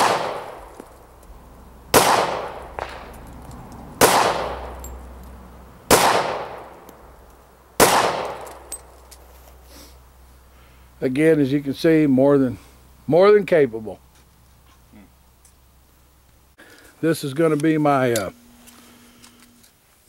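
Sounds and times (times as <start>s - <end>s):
pistol shots: 0.0s - 0.8s, 1.9s - 3.2s, 4.0s - 4.8s, 5.9s - 6.8s, 7.8s - 8.7s.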